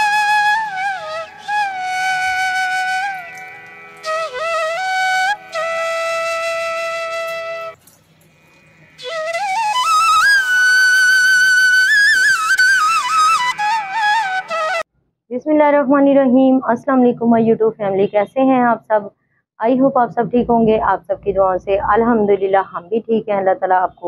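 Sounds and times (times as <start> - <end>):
solo flute melody: 0.0 - 7.8, 9.0 - 14.9.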